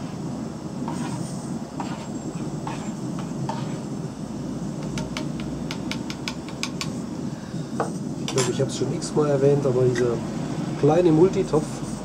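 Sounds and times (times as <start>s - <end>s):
gas stove burner: 0.0s - 12.0s
sharp metal taps on pot: 4.8s - 7.0s.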